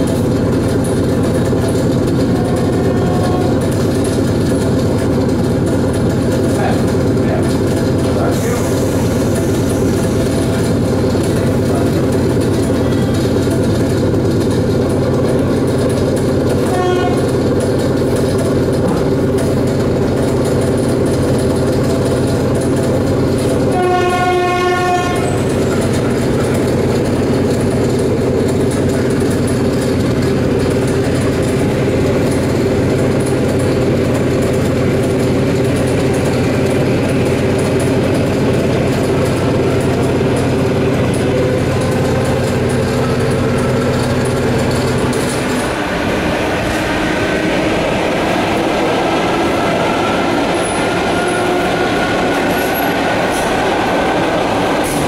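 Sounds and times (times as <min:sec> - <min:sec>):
train horn: 0:02.2 - 0:03.8, 0:16.6 - 0:17.3, 0:23.7 - 0:25.6, 0:49.2 - 0:53.8
traction motor whine: 0:36.4 - 0:55.0.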